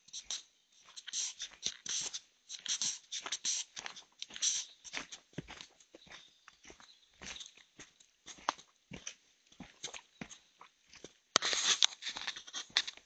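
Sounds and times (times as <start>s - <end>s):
footsteps crunching on dry leaves: 10.9s - 13.0s.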